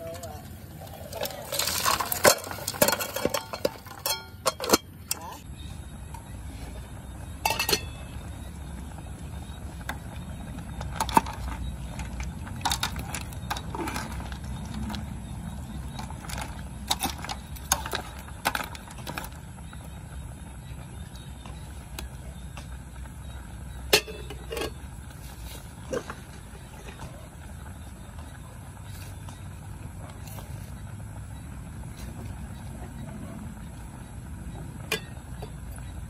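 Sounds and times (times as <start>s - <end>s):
pot boiling on gas burner: 0.0s - 36.0s
metal ladle clinking on pot: 1.1s - 5.4s, 7.4s - 8.1s, 23.9s - 24.8s, 34.9s - 35.2s.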